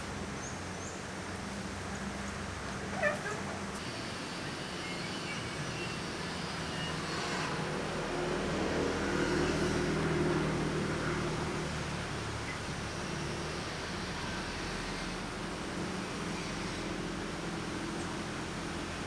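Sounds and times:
distant vehicle engine: 1.4s - 19.0s
short high squeak: 2.9s - 3.6s.

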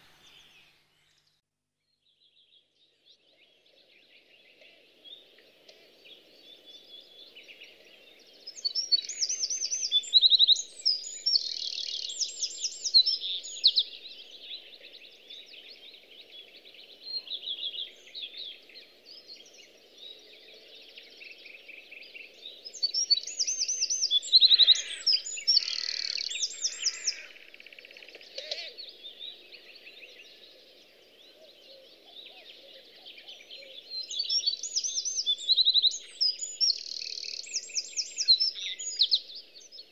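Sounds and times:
faint low background noise: 0.0s - 39.9s
songbirds trilling: 4.5s - 39.9s.

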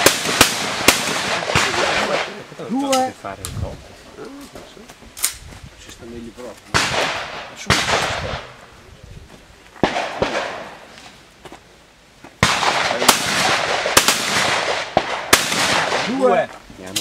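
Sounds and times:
shotgun shots echoing: 0.0s - 3.1s, 6.7s - 8.6s, 9.8s - 10.9s, 12.4s - 16.4s.

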